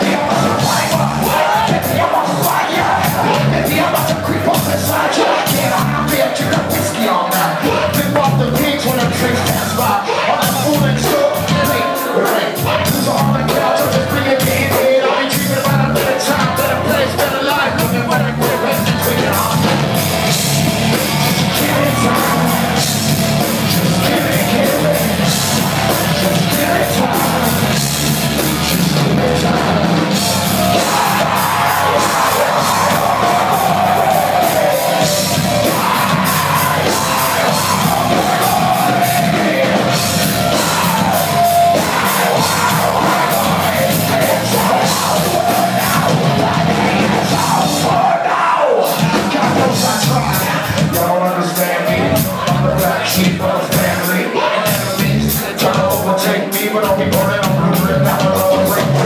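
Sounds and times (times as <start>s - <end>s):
live heavy rock band playing: 0.0s - 59.0s
singer yelling and singing: 0.0s - 59.0s.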